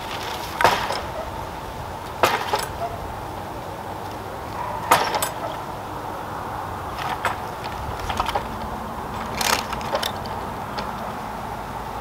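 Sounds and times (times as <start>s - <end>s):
wire-mesh gate rattling: 0.0s - 1.5s, 2.2s - 3.1s, 4.6s - 5.8s, 6.8s - 11.1s
gate hardware knocking: 2.2s - 3.0s, 4.8s - 5.6s.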